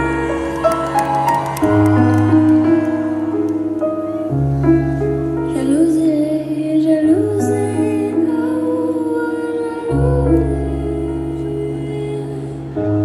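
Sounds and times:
bass: 0.0s - 13.0s
keyboard chords: 0.0s - 13.0s
woman singing wordlessly: 5.5s - 12.7s.

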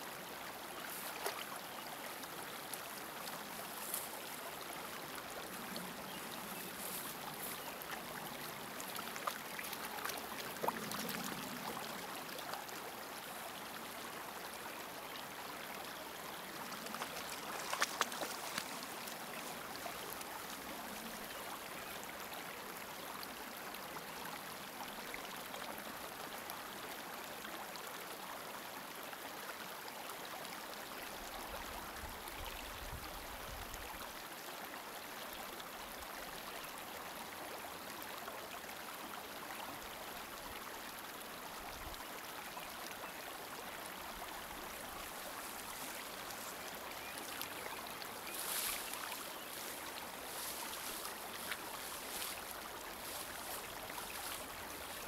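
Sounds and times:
running water rushing: 0.0s - 26.5s, 36.9s - 55.0s
light water splashes: 0.8s - 13.4s, 16.4s - 21.6s, 44.5s - 55.0s.

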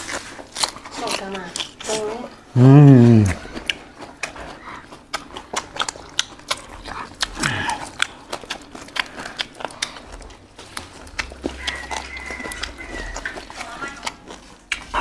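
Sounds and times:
chewing: 0.0s - 15.0s
vocal sound falling in pitch: 2.6s - 3.4s.

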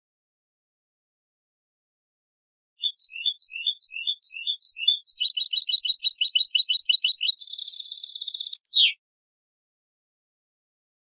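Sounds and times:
goldfinch singing: 2.8s - 9.0s.

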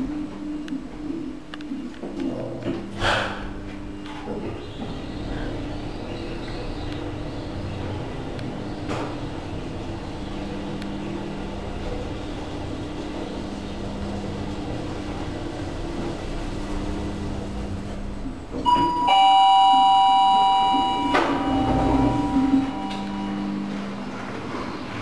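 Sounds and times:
elevator humming: 2.8s - 25.0s
elevator doors opening: 3.5s - 25.0s
two-tone elevator chime: 18.7s - 23.8s.

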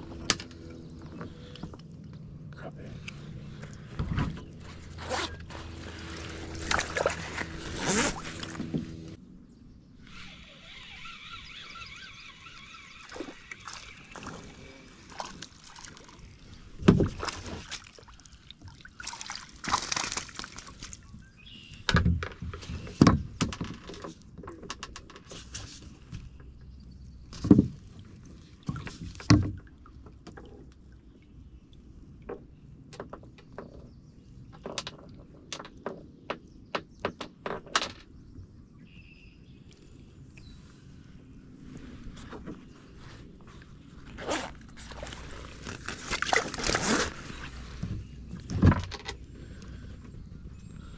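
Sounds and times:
water sloshing: 0.0s - 9.2s, 10.7s - 21.3s, 41.6s - 50.2s.

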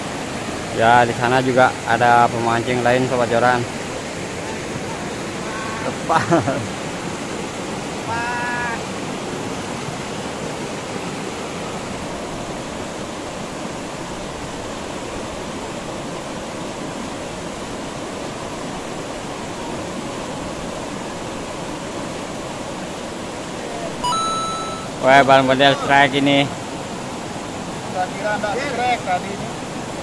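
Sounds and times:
river water rushing over rapids: 0.0s - 30.0s
short high-pitched tone: 24.0s - 26.1s.

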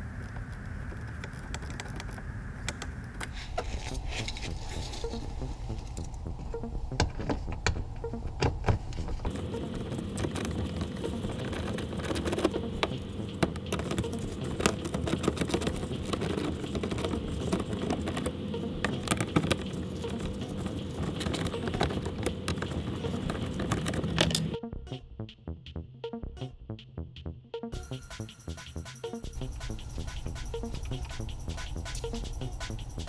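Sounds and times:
steady hum: 0.0s - 24.6s, 27.8s - 33.0s
hand tool clicking and rattling: 18.9s - 24.6s.

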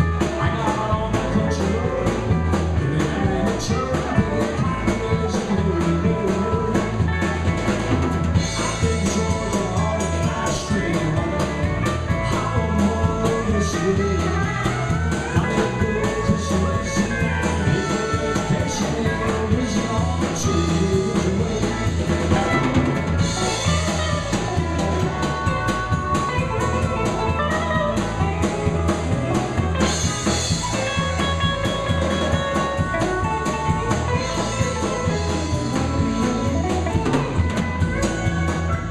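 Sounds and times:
drum kit beat: 0.0s - 38.9s
live country band playing: 0.0s - 38.9s.

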